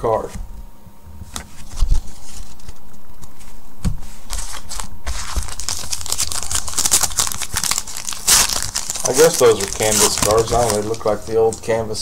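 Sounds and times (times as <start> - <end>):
card pack wrapper crinkling: 4.3 - 11.8.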